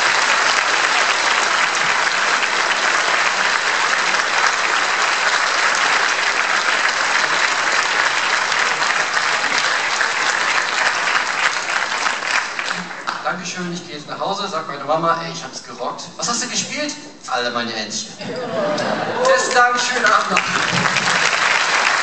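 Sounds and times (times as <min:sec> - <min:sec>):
audience applauding: 0:00.0 - 0:13.3, 0:19.0 - 0:22.0.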